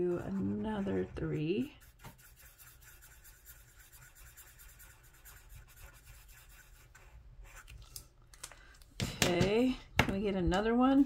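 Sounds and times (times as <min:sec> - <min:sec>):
marker scratching on paper: 0:00.0 - 0:07.8.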